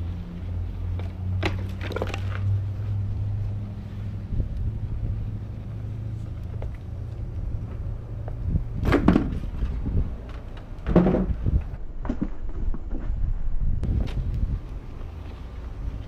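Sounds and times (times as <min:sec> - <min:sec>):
board rattling on rough ground: 0:00.9 - 0:02.6, 0:08.8 - 0:13.4.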